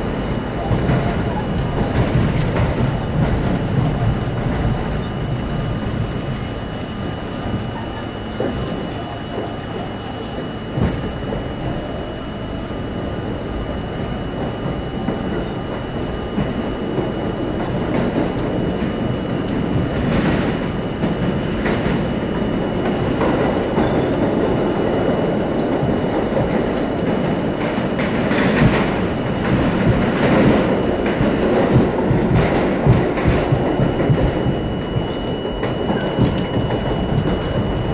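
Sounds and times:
train wheels rumbling on rail: 0.0 - 37.9
wheels clicking over rail joints: 0.1 - 5.7
faint high whine: 32.7 - 37.9.

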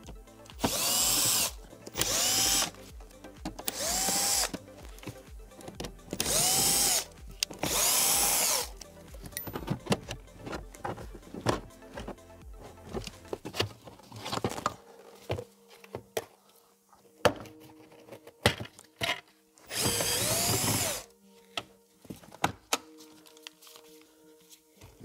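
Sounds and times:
cordless drill running: 0.6 - 2.8, 3.6 - 4.6, 6.2 - 8.8, 19.7 - 21.1.

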